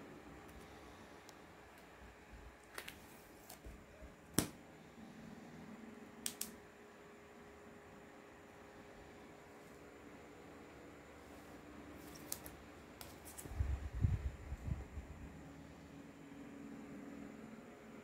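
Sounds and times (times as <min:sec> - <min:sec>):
plastic comic sleeves clicking: 0:12.0 - 0:13.5.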